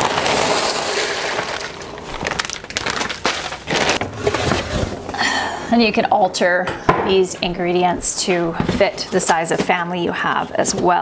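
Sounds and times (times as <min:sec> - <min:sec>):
plastic wrapping crinkling: 0:00.0 - 0:05.2
containers clattering in cabinet: 0:03.3 - 0:05.2.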